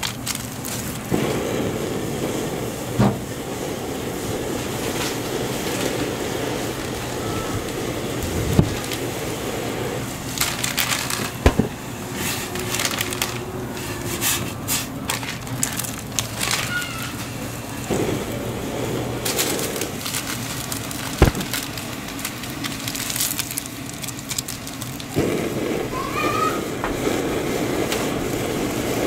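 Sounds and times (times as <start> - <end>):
broth boiling in a pot: 0.0 - 29.0
dried noodles snapped by hand: 19.2 - 26.5.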